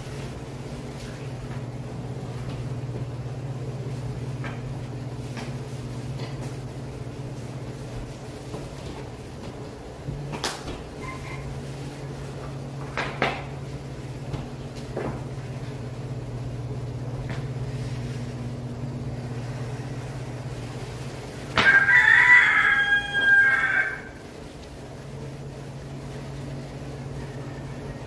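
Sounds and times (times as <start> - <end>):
steady low hum: 0.0 - 28.0
rooster crowing: 21.6 - 24.3, 26.9 - 28.0.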